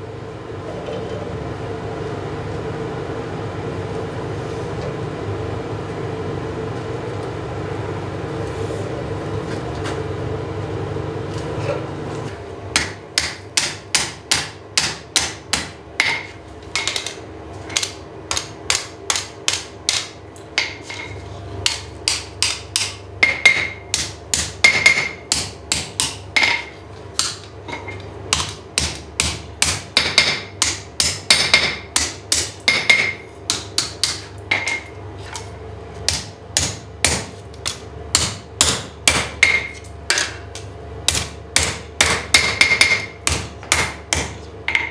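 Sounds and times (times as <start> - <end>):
hammer striking steel on anvil: 12.8 - 17.1, 17.7 - 34.9, 36.1 - 40.5, 41.1 - 44.9.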